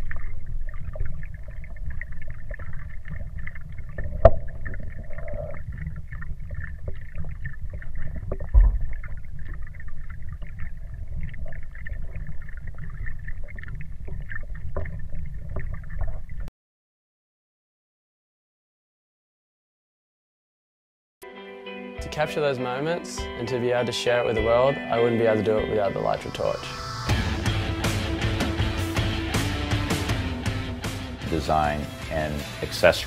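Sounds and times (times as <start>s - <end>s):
muffled underwater rumble: 0.0s - 16.5s.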